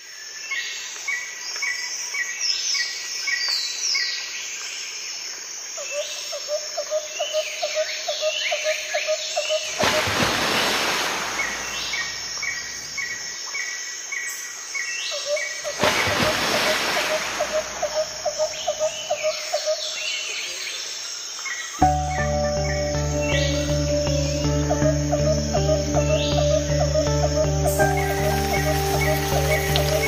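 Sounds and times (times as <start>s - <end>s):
loud even hiss: 9.7s - 13.1s
birds chirping and whistling: 21.8s - 30.0s.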